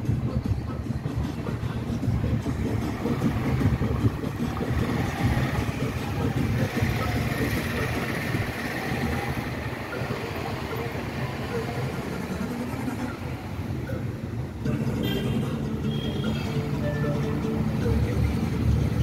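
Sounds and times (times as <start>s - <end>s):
vehicle engine and road rumble: 0.0s - 19.0s.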